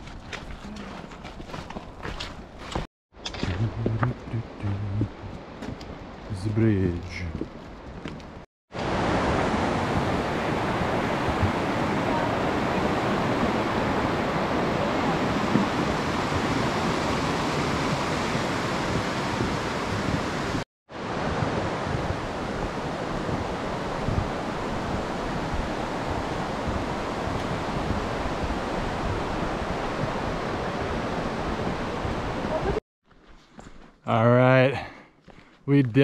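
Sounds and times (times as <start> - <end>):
river water rushing: 8.8 - 32.8.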